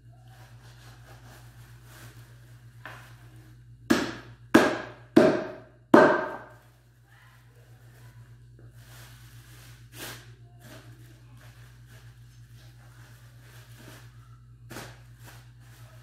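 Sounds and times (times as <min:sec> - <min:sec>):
knife chopping meat on wooden board: 0:03.9 - 0:06.5.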